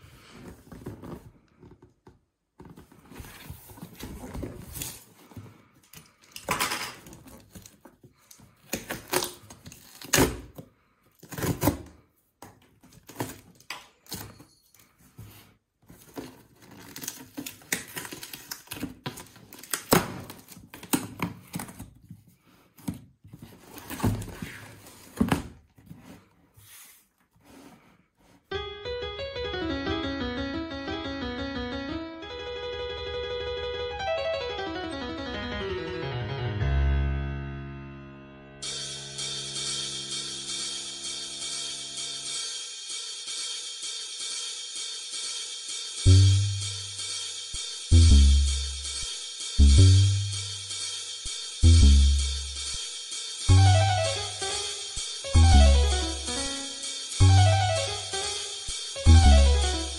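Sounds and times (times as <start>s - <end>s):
tape ripping off cardboard: 8.7s - 10.6s, 11.2s - 11.9s, 16.2s - 21.9s
piano music: 28.5s - 42.6s, 53.5s - 59.9s.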